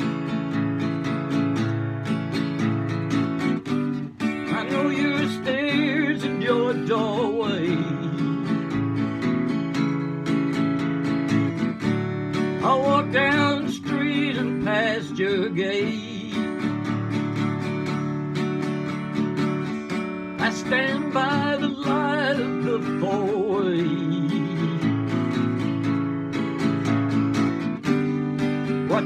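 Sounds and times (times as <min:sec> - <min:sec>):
acoustic guitar strumming: 0:00.0 - 0:29.0
wordless wavering vocal melody: 0:04.4 - 0:08.6.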